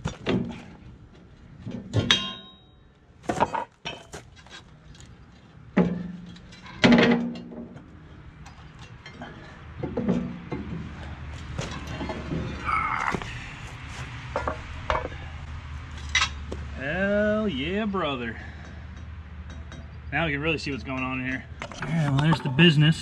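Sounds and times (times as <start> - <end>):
metal clanking and knocking: 1.6 - 2.7, 5.7 - 13.4, 14.2 - 15.2, 18.4 - 20.0.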